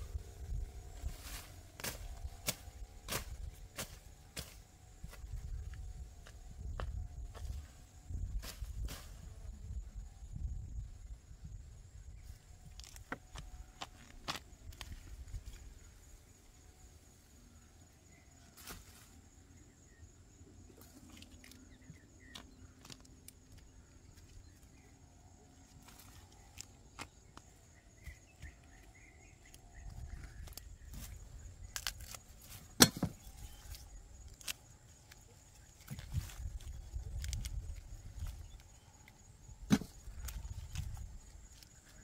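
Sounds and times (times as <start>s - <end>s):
leaves and soil rustling: 0.0s - 9.9s, 20.7s - 42.0s.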